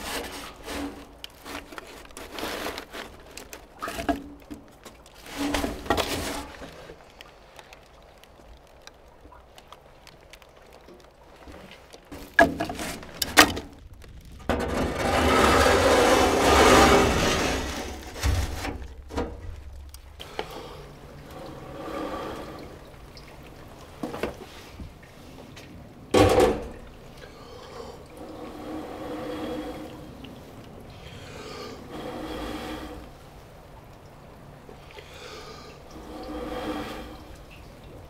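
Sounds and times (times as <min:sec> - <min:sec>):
fire flaring up with rushing noise: 0:12.9 - 0:20.3.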